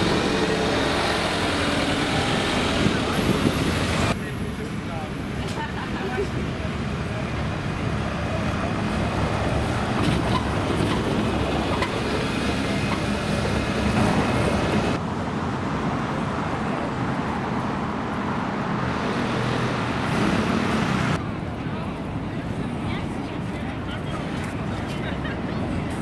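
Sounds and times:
buses driving past: 0.0s - 26.0s
street traffic: 0.0s - 26.0s.

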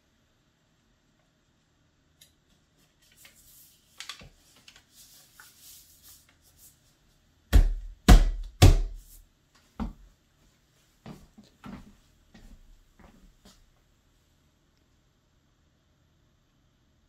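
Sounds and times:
paper rustling: 2.8s - 7.0s
palm thumping on a wall: 7.5s - 9.1s.

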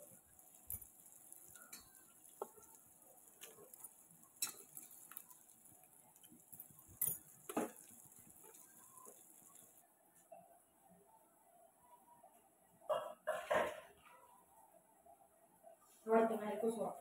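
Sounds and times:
fish pieces tapping in a pot: 0.6s - 9.7s.

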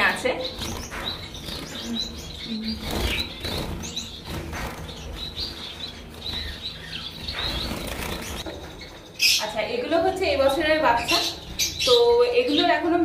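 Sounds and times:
wings flapping: 0.0s - 8.8s.

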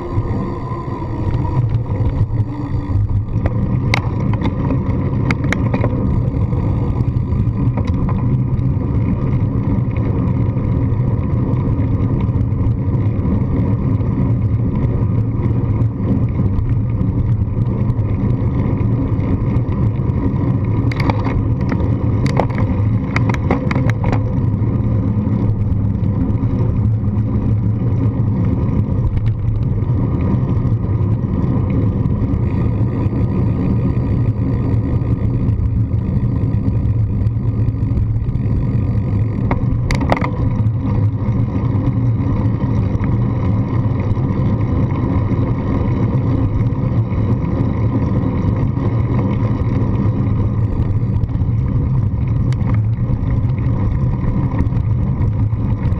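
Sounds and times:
road rumble: 0.0s - 55.9s
clicks and rattles from bumps: 1.3s - 10.1s, 18.8s - 25.9s, 29.0s - 30.7s, 36.9s - 43.2s, 49.2s - 55.9s.

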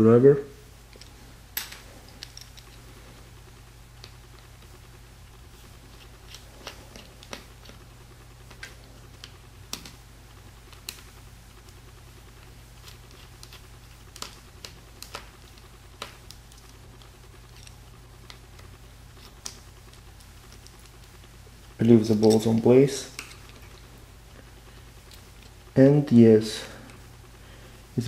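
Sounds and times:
steady low hum: 0.0s - 28.0s
fingers handling small metal parts: 0.9s - 2.8s, 6.0s - 7.8s, 12.8s - 21.3s, 21.9s - 23.9s.

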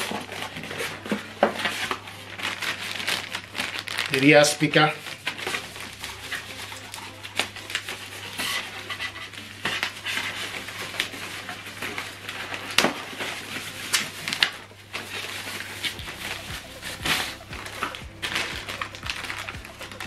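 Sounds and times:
plastic bag crinkling: 0.0s - 20.0s.

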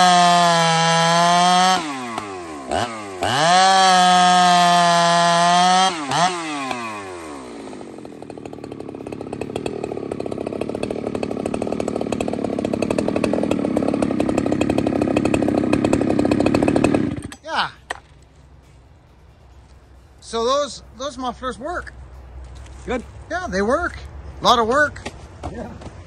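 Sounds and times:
chainsaw running and idling: 0.0s - 18.8s.

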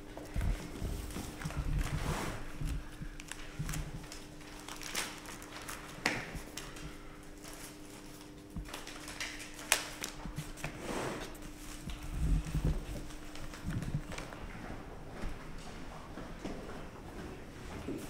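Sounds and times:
steady low hum: 0.0s - 18.0s
paper rustling: 0.3s - 14.4s.

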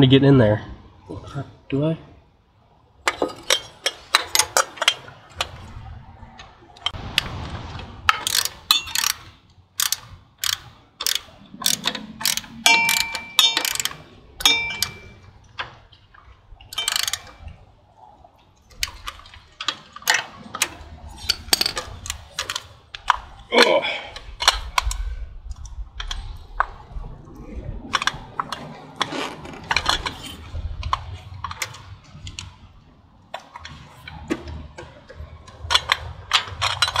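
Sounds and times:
wrenches clinking on metal: 3.0s - 5.5s, 8.1s - 15.8s, 16.7s - 17.6s, 18.8s - 23.2s, 33.4s - 37.0s
hand ratchet clicking: 8.1s - 15.2s, 16.7s - 17.4s, 21.2s - 22.7s
metal tool ringing: 12.6s - 15.2s, 16.8s - 17.4s.

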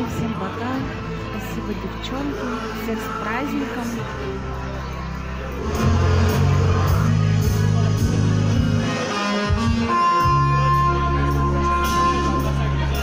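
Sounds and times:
deep bass line: 4.1s - 13.0s
loud guitar music: 5.1s - 13.0s.

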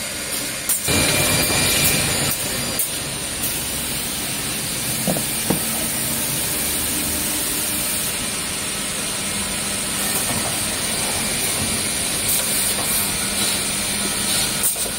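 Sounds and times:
woodworking machinery running: 0.0s - 14.9s
board knocking: 5.0s - 5.7s.

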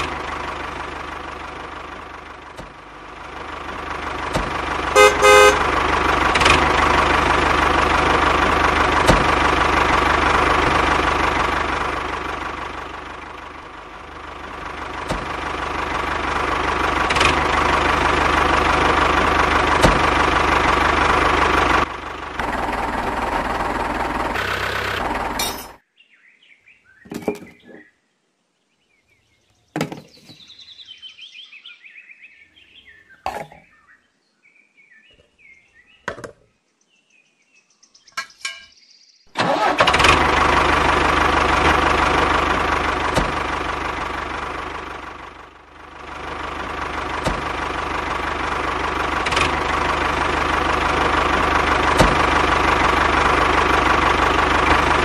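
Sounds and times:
small motor running: 24.1s - 25.4s.

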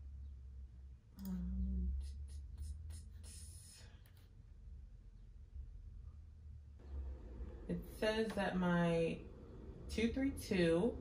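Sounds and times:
low steady hum: 0.0s - 11.0s
woman humming: 1.2s - 3.8s.

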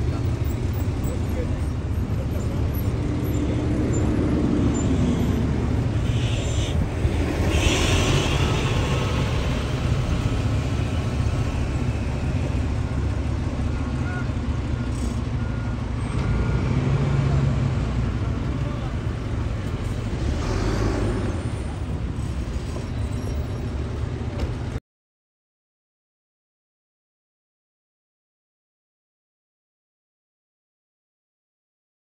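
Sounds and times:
vehicle engines rumbling: 0.0s - 24.8s.

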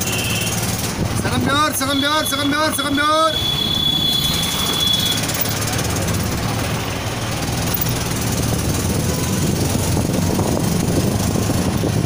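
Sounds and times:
street noise: 0.0s - 12.0s
vehicle engine running: 3.4s - 12.0s.

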